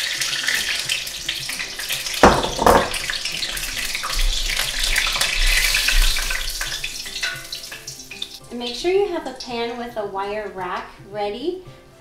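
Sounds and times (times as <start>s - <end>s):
fish deep-frying in oil: 0.0s - 9.6s
sharp knocks: 2.2s - 3.1s.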